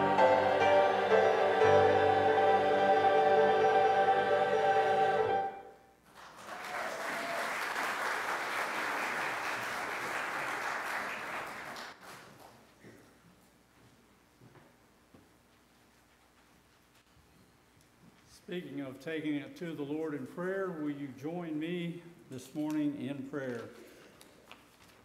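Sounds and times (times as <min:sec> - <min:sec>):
choir singing with accompaniment: 0:00.0 - 0:05.8
congregation applauding: 0:06.1 - 0:12.7.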